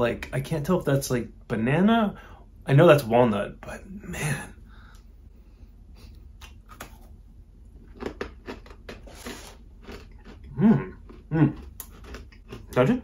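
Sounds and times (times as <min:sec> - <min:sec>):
crunching and chewing biscotti: 0:06.4 - 0:13.0
person humming mm: 0:10.5 - 0:11.6.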